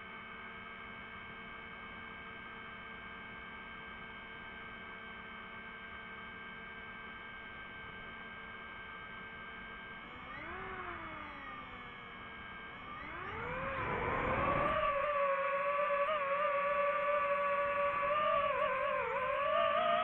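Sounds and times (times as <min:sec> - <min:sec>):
drone motors whining: 0:10.0 - 0:20.0.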